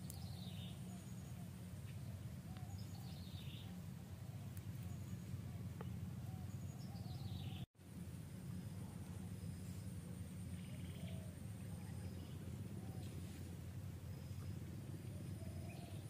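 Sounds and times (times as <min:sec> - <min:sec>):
bird chirping: 0:00.0 - 0:07.7, 0:09.4 - 0:13.4
low background noise: 0:00.0 - 0:16.0.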